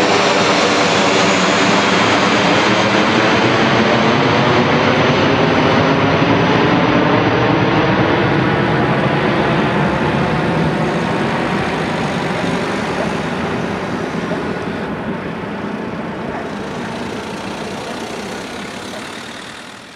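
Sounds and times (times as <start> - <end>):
jet engine roar: 0.0 - 19.9.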